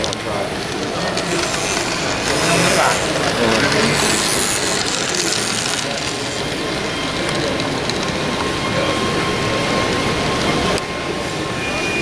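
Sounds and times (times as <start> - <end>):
voices murmuring: 0.0 - 11.8
model tram motor whirring: 0.5 - 8.0.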